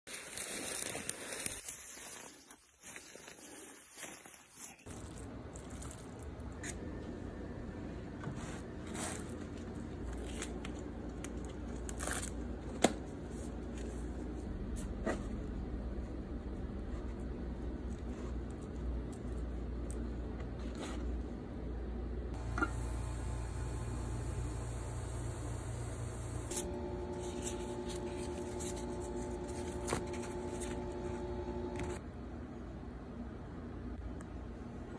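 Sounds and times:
corn husk rustling: 0.1s - 5.2s, 22.4s - 32.0s
low steady hum: 4.9s - 34.9s
low rumble: 14.0s - 20.0s.

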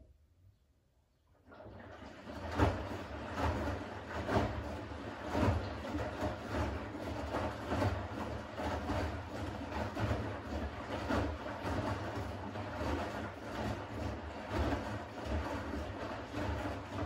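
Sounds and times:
water and laundry sloshing: 1.3s - 17.0s
washing machine drum turning: 1.6s - 17.0s.

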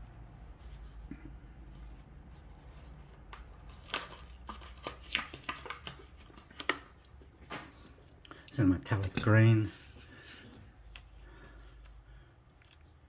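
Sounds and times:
plastic packaging being torn open: 3.2s - 7.1s.

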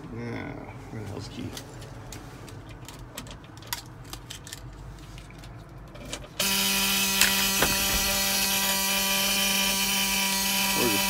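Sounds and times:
dashboard warning buzzer: 6.4s - 11.0s.

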